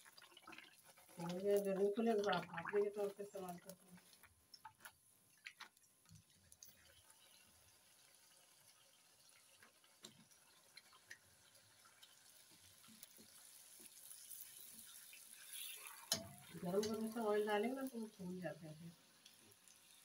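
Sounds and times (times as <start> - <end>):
food sizzling in hot oil: 0.0 - 5.7, 6.5 - 20.0
small crackles: 0.0 - 18.3.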